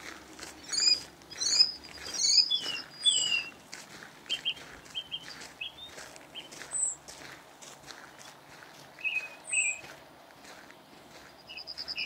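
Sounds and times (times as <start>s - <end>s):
footsteps on gravel: 0.0s - 12.0s
small birds chirping: 0.6s - 3.6s, 4.2s - 7.1s, 8.0s - 10.0s, 11.0s - 12.0s.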